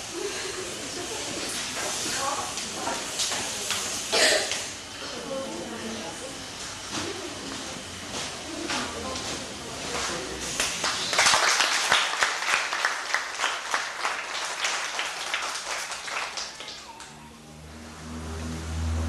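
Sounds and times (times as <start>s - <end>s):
audience applauding: 10.6s - 17.2s
low hum: 17.1s - 19.0s.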